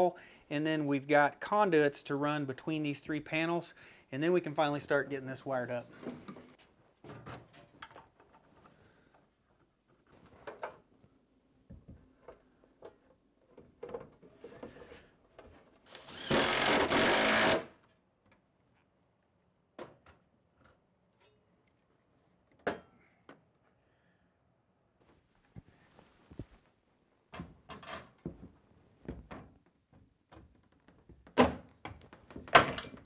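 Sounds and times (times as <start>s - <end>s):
cordless impact driver running: 15.9s - 17.7s.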